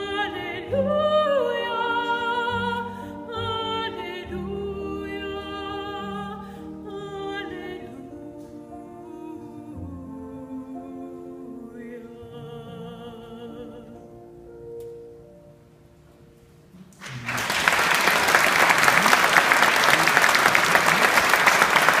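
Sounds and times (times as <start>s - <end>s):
woman singing with vibrato: 0.0s - 14.0s
audience applause: 17.0s - 22.0s.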